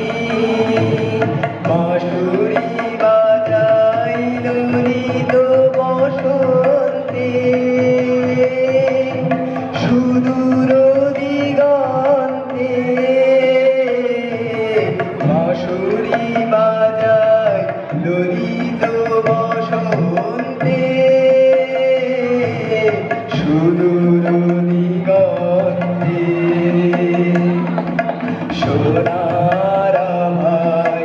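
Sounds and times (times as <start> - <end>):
tabla strokes: 0.0 - 31.0.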